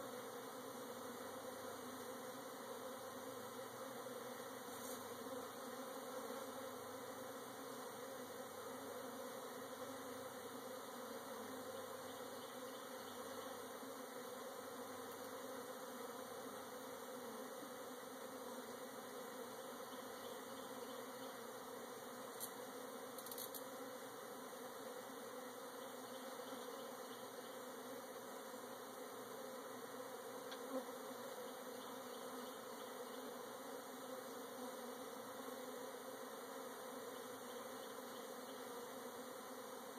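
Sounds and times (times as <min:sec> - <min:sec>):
bees buzzing: 0:00.0 - 0:39.9
small clicks: 0:23.2 - 0:23.7.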